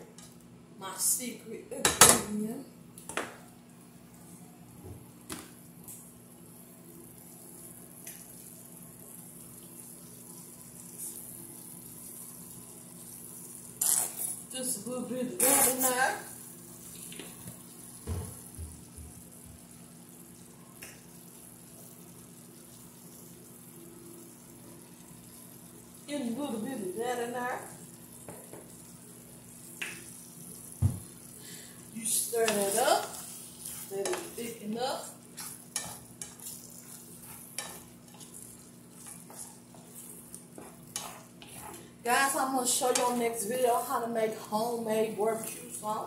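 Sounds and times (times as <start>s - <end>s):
food sizzling in a frying pan: 0.1s - 46.0s
utensil stirring and scraping pan: 13.8s - 14.4s, 15.4s - 16.2s, 32.0s - 41.9s, 42.6s - 43.9s.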